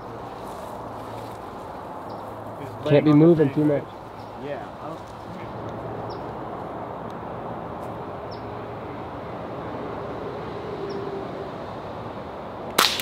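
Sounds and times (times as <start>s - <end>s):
freeway traffic rumble: 0.0s - 13.0s
air rifle shot: 12.8s - 13.0s.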